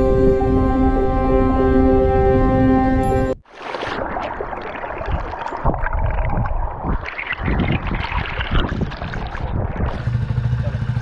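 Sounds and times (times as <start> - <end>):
water washing over camera: 3.4 - 10.3.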